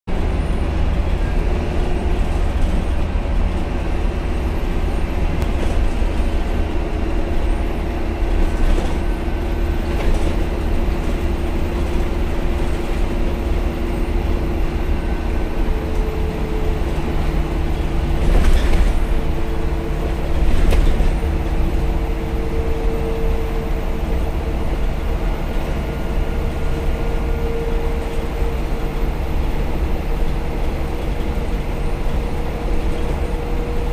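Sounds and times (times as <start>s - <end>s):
bus diesel engine rumbling: 0.1s - 33.9s
bus body knocks and rattles: 17.1s - 23.1s.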